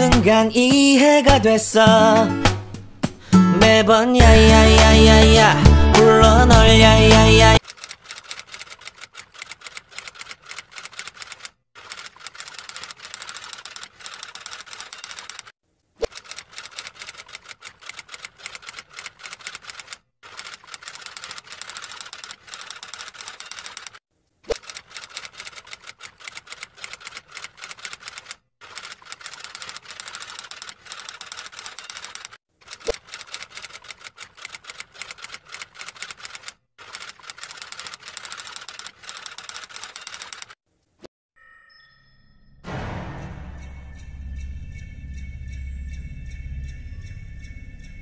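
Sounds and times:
typewriter keys clattering: 0:07.6 - 0:15.5, 0:16.2 - 0:24.0, 0:24.6 - 0:40.6.

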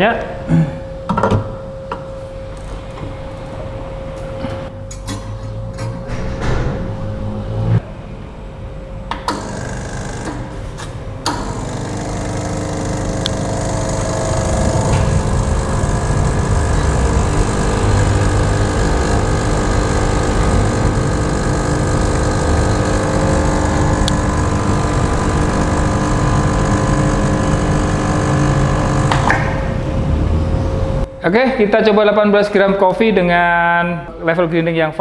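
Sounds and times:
espresso machine pump buzzing: 0:09.3 - 0:31.1.

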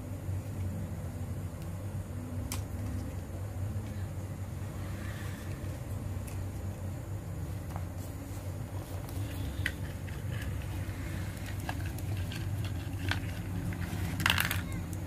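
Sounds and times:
steady low hum: 0:00.0 - 0:15.0
plastic clicks and rustles: 0:09.4 - 0:15.0.

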